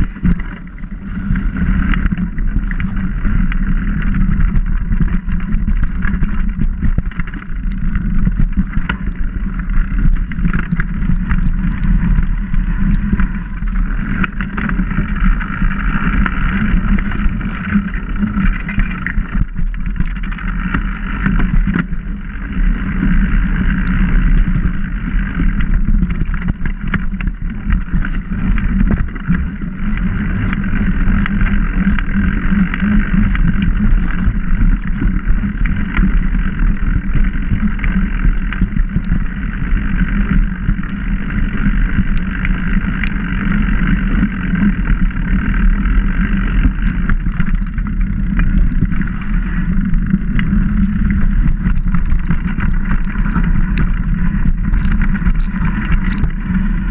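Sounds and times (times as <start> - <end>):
bike clicks and rattles: 0.0 - 56.9.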